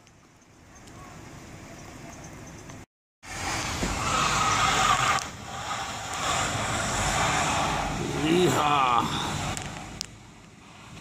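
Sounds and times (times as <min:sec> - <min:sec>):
tires spinning on ice: 0:03.2 - 0:11.0.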